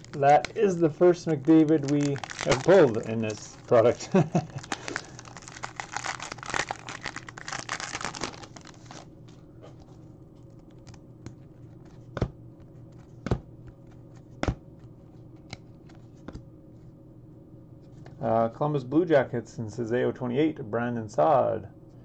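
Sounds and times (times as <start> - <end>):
cards being flipped through: 0.0 - 4.0, 4.6 - 16.4
foil wrapper tearing and crinkling: 0.0 - 9.1.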